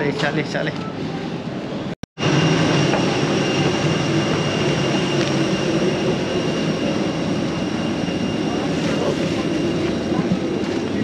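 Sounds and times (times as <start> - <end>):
high whine: 2.2 - 11.0.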